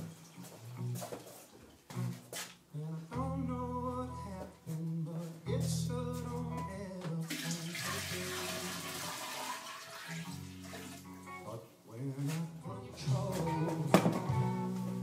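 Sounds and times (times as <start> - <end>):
music with steady bass line: 1.9 - 7.2, 11.1 - 15.0
water running from tap: 7.3 - 11.1.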